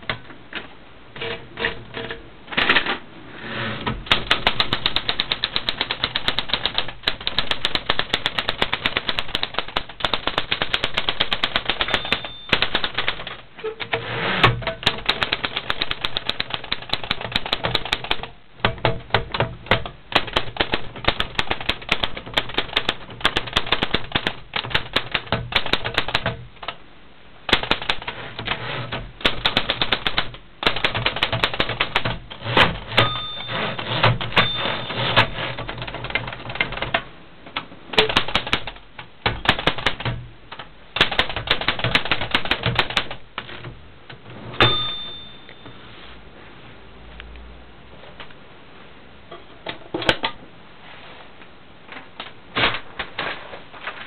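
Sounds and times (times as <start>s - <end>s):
typewriter keys clacking: 4.1s - 26.8s, 27.5s - 37.0s, 37.9s - 43.7s
typewriter bell ringing: 11.6s - 13.0s, 33.0s - 35.6s, 44.6s - 45.8s.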